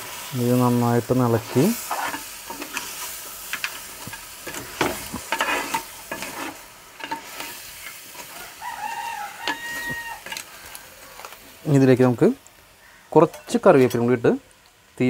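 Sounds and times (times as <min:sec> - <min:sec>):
food sizzling in a pot: 0:00.0 - 0:15.0
spatula scraping a pot: 0:01.8 - 0:08.4.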